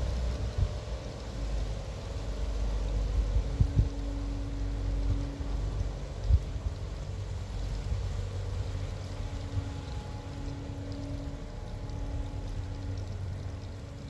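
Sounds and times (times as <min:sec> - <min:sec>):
faint steady hum: 0:00.0 - 0:14.0
ship diesel engine rumble: 0:00.0 - 0:14.0.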